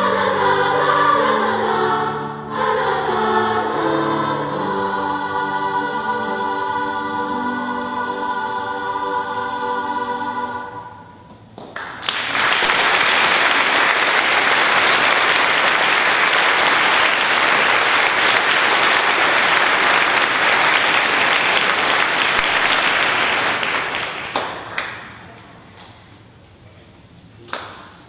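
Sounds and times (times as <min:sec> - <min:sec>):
children's choir singing: 0:00.0 - 0:11.4, 0:12.5 - 0:25.2
audience applause: 0:11.8 - 0:25.3.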